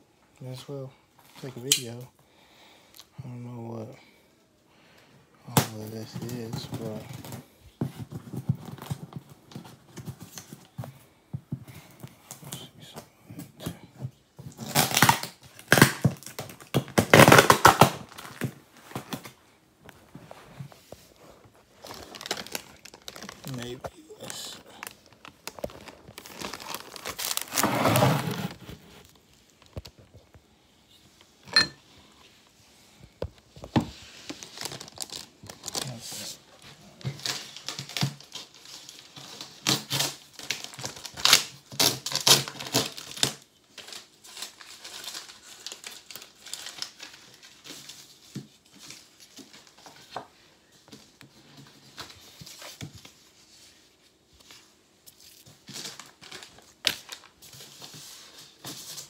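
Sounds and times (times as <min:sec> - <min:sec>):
plastic crinkling and tearing: 0:14.4 - 0:20.0, 0:20.6 - 0:30.4, 0:33.6 - 0:59.0.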